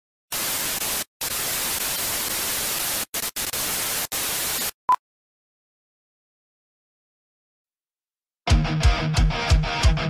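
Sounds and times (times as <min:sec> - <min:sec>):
television static hiss: 0:00.3 - 0:04.8.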